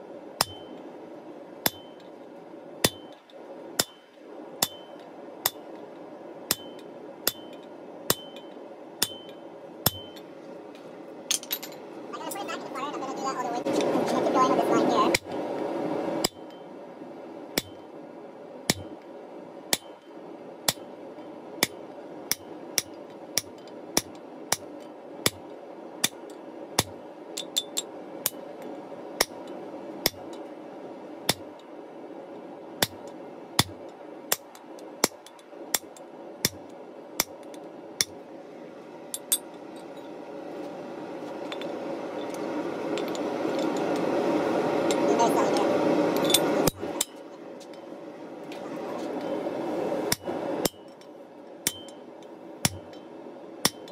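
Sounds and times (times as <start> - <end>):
steady hum: 0.0 - 53.9
hammer striking chisel on metal: 0.4 - 0.8, 1.6 - 2.0, 2.8 - 3.2, 3.8 - 5.6, 6.5 - 10.3, 17.6 - 17.8, 18.7 - 18.9, 19.7 - 20.0, 37.2 - 37.4, 50.1 - 50.9, 51.6 - 52.0, 52.6 - 53.0, 53.6 - 53.9.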